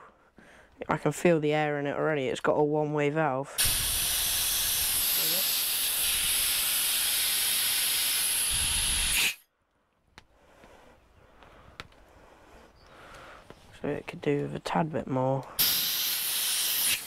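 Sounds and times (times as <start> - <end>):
compressed air hissing: 3.6 - 9.4, 15.5 - 17.0.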